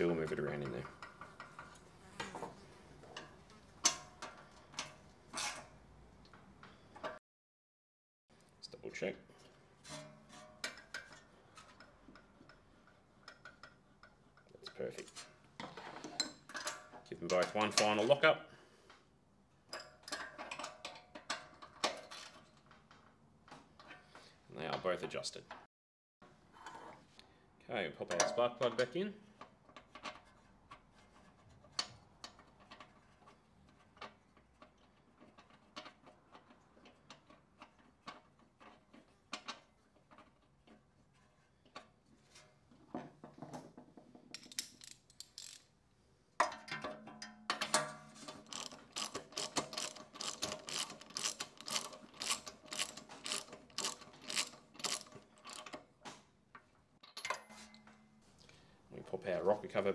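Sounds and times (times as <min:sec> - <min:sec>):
ratchet wrench clicking: 0:44.4 - 0:45.7, 0:48.4 - 0:55.7.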